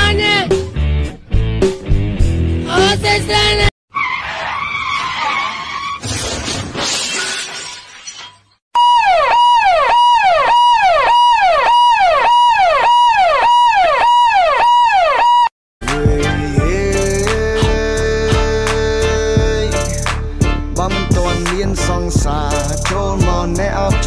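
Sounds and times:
siren-like tone dropping in pitch: 8.8s - 15.5s.

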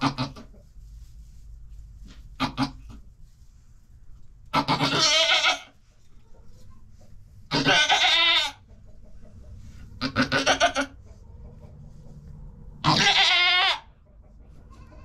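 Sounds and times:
goat bleating loudly: 4.6s - 5.7s, 7.5s - 8.6s, 10.0s - 11.0s, 12.8s - 13.9s.

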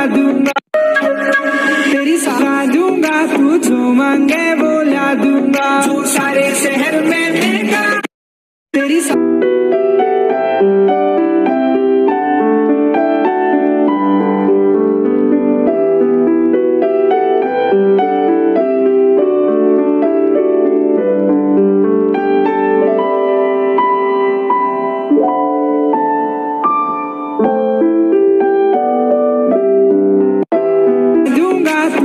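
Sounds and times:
gentle piano melody: 9.2s - 32.0s.

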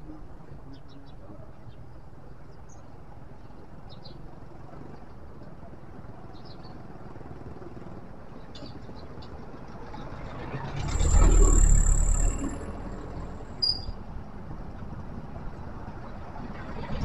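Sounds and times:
faint high chirps: 10.8s - 14.0s.

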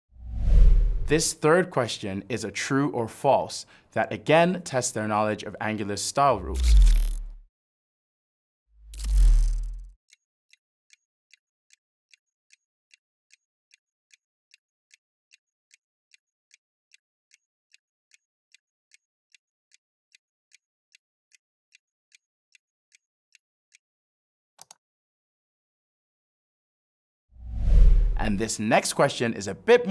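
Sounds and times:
whoosh with low rumble: 0.2s - 1.1s, 27.4s - 28.4s.

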